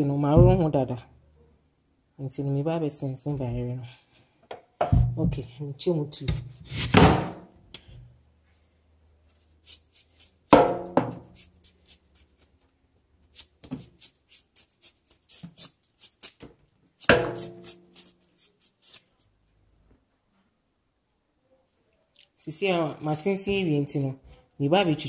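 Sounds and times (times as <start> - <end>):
knife scraping yam skin: 6.4 - 7.0, 9.3 - 10.5, 11.1 - 12.6, 13.2 - 19.3.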